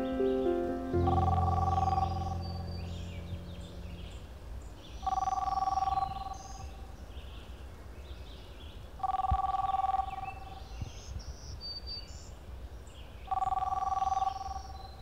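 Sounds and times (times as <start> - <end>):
low tone: 0.0 - 4.6
birds chirping: 0.0 - 6.6.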